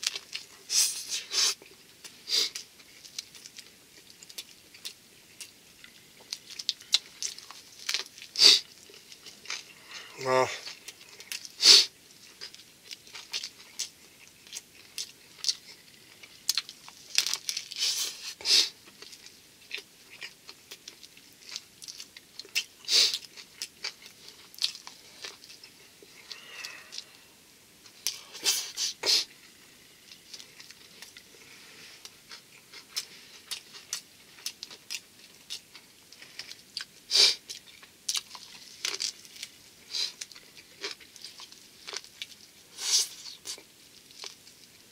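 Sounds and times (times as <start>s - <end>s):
chewing and biting sushi: 0.0s - 9.9s, 10.6s - 27.2s, 27.8s - 44.9s
crisp crackles: 12.2s - 27.3s.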